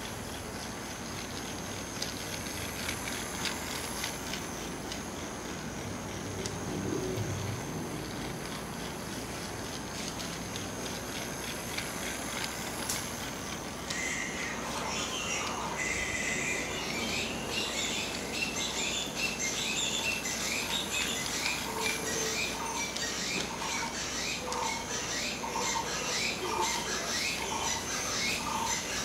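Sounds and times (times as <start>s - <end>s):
toy train motor humming: 0.0s - 29.0s
wheels clicking on track: 0.0s - 29.0s
birds chirping: 13.9s - 29.0s.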